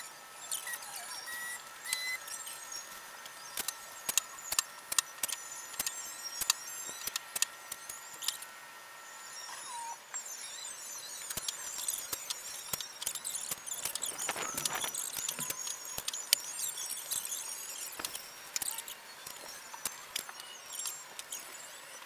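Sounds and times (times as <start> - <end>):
plastic sheeting crinkling: 13.8 - 15.6.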